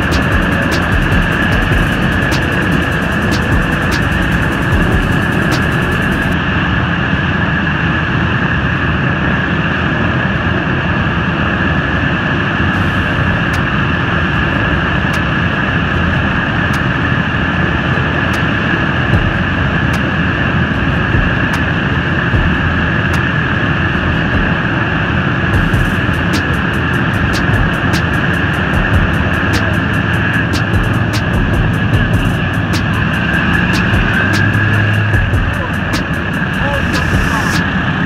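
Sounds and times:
piston engines droning: 0.0 - 38.0.

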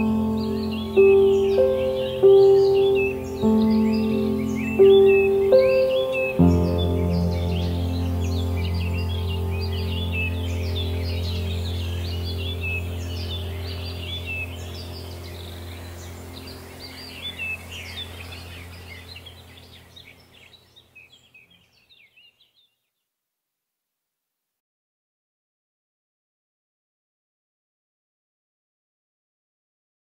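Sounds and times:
low steady hum: 0.0 - 20.9
birds chirping: 0.0 - 22.9.

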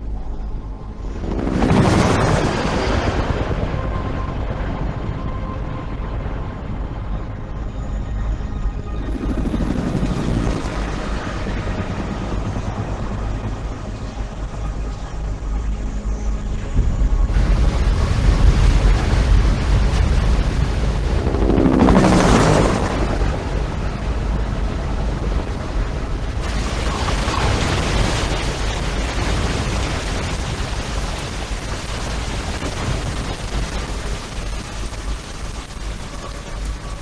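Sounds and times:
deep continuous rumble: 0.0 - 37.0
rushing waterfall: 26.2 - 37.0.

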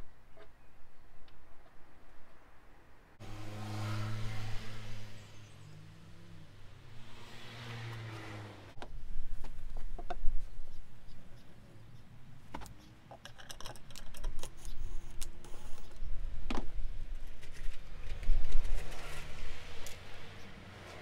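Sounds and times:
handling clicks and knocks: 12.5 - 15.3.

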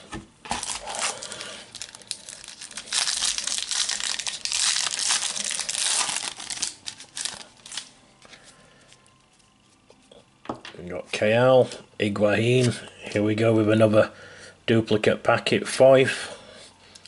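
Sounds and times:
foil wrapper tearing and crumpling: 0.5 - 7.9.

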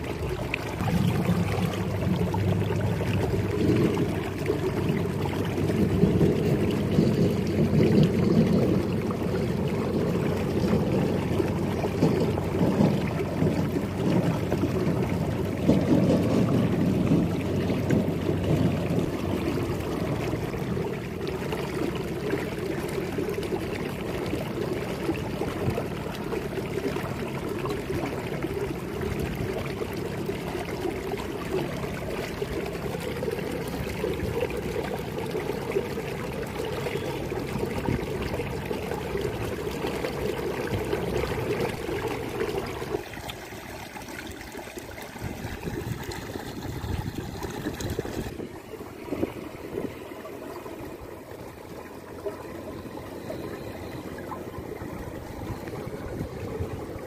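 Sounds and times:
water running in a channel: 0.0 - 57.0.

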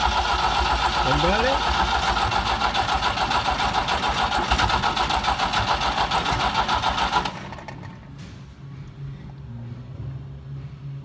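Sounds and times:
engine cranking without starting: 0.0 - 8.0.

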